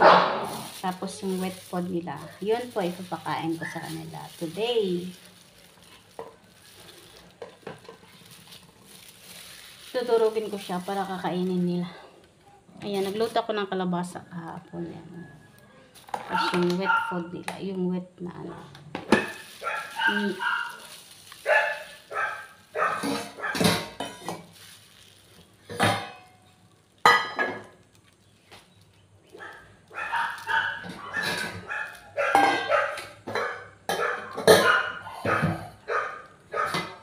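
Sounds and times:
dogs barking and yipping: 15.8 - 17.3, 19.1 - 24.0, 29.2 - 37.0
metal dog bowls clanking: 30.6 - 35.6.

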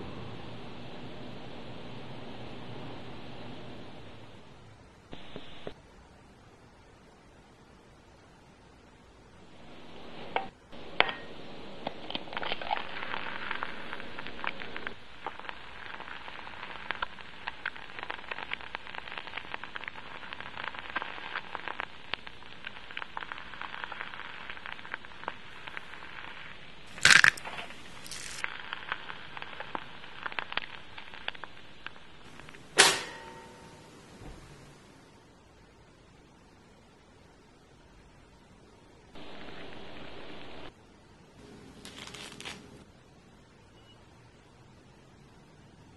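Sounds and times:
sharp cracks: 10.4 - 33.5
egg sizzling in a pan: 11.0 - 33.4
loud snap: 32.3 - 33.8.

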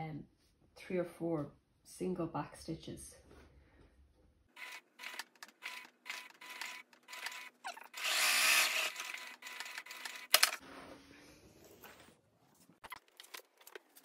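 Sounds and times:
sewing machine needle strokes: 4.6 - 10.5.

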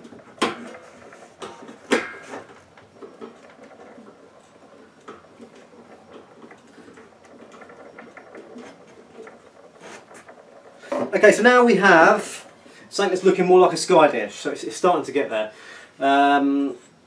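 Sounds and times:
sharp knocks: 0.3 - 4.2.

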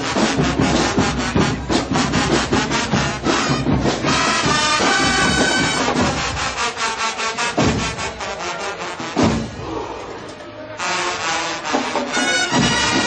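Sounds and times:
marching band brass: 0.0 - 9.9, 10.8 - 13.0.

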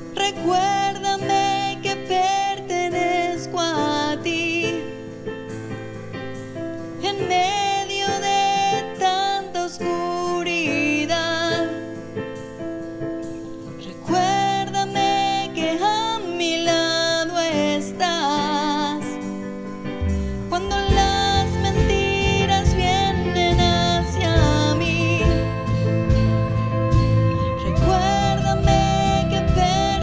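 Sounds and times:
woman singing: 0.0 - 5.2, 7.0 - 12.2, 13.8 - 19.4, 20.5 - 26.3, 27.2 - 30.0
keyboard chords: 0.0 - 30.0
drum played with sticks: 19.2 - 30.0.

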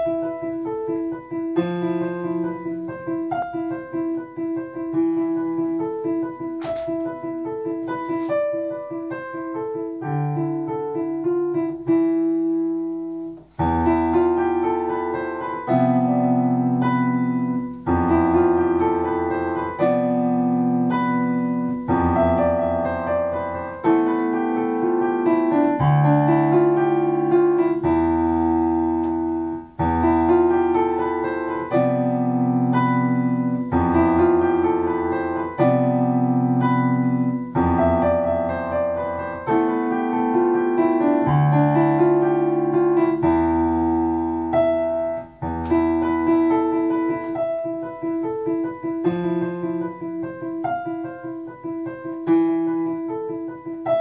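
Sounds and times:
solo piano: 0.0 - 54.0.

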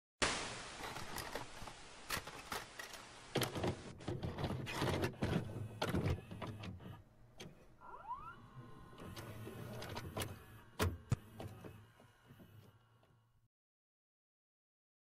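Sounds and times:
vcr clicks and clunks: 3.3 - 7.6
rising whine: 7.8 - 9.8.

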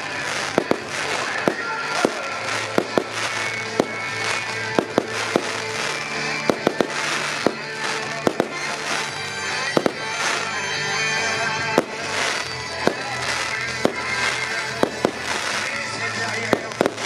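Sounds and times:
fireworks bangs: 0.0 - 17.0
fireworks crackling: 0.0 - 17.0
music: 0.0 - 17.0.

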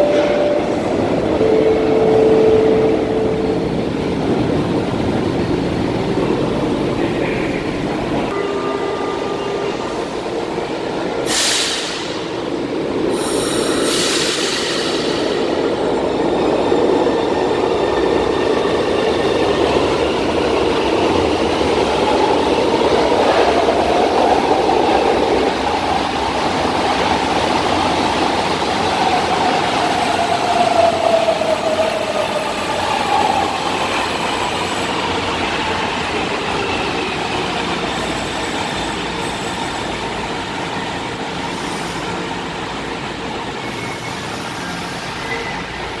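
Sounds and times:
train wheel and running noise: 10.0 - 46.0.

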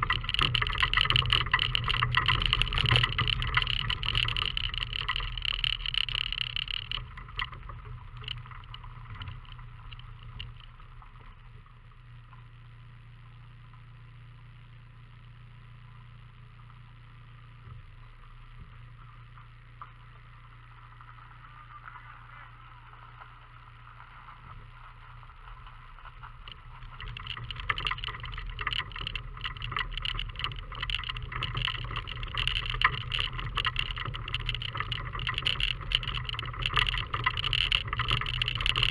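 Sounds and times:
loose stones rattling: 0.0 - 11.5, 24.0 - 38.9
car engine drone: 0.0 - 38.9.

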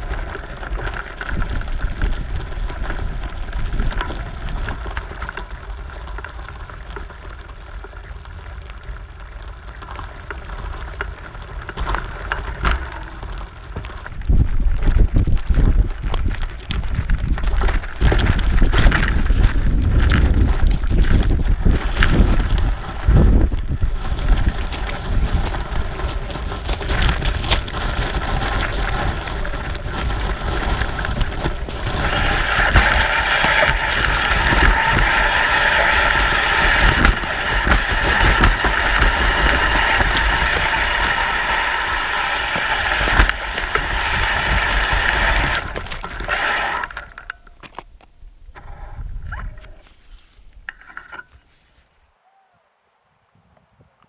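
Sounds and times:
wind buffeting microphone: 14.1 - 47.2, 47.9 - 49.8
rushing road noise: 21.2 - 47.0.

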